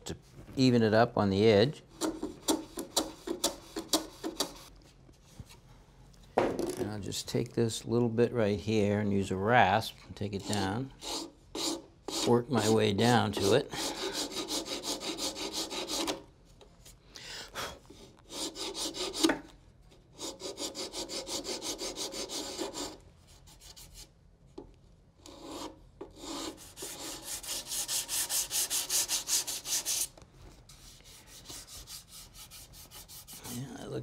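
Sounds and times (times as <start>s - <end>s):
rasp filing wood: 10.4s - 16.2s, 18.3s - 19.3s, 20.2s - 23.9s, 25.3s - 30.1s, 31.1s - 33.5s.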